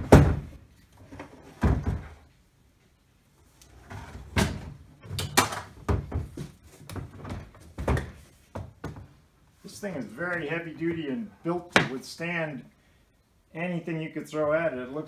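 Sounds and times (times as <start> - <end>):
toolbox case knocking and thumping: 5.3 - 6.5.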